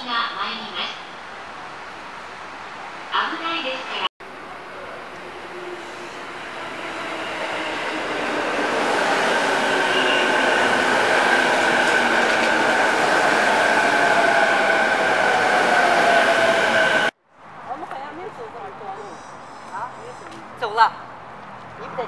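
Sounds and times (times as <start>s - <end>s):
train wheels rumbling: 4.3s - 17.1s.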